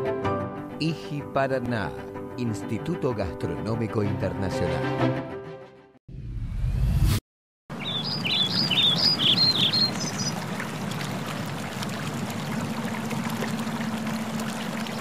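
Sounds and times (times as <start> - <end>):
bird chirping: 7.7 - 10.4.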